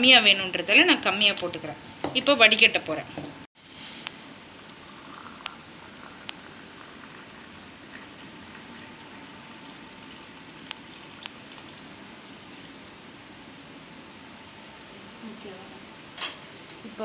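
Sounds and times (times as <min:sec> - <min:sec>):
liquid pouring into a glass: 0:04.5 - 0:12.0.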